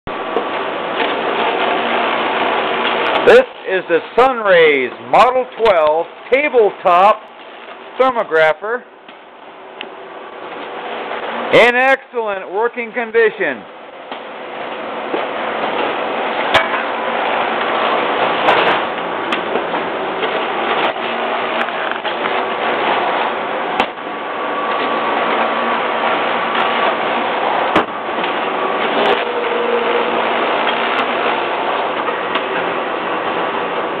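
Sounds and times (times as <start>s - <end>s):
machine whirring: 13.4s - 34.0s.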